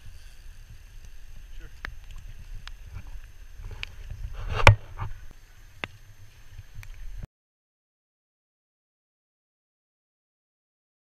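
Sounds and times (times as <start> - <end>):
wind rumble on microphone: 0.0 - 7.3
rushing noise with sharp crack: 1.0 - 6.0.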